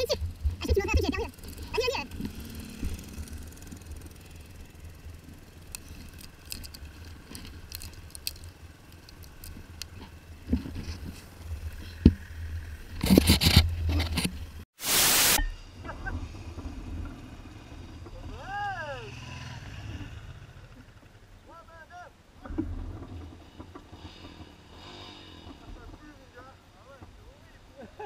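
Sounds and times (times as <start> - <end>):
motorcycle engine rumble: 0.0 - 14.6, 15.6 - 28.0
rattles and stone clicks: 1.3 - 14.6
loud burst of rushing noise: 14.8 - 15.4.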